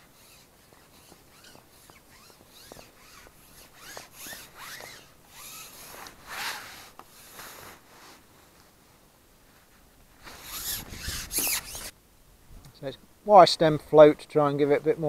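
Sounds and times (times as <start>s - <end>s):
fishing pole rasping against gloves: 0.0s - 7.8s, 10.2s - 11.9s.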